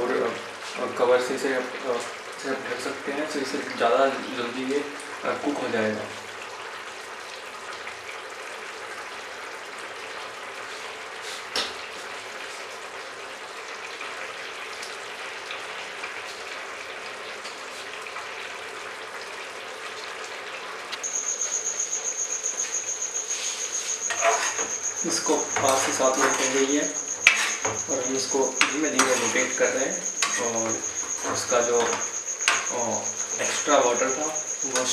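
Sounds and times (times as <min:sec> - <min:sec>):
gravy simmering with bubbling hiss: 0:00.0 - 0:34.9
insect pulsing chirp: 0:21.0 - 0:34.9.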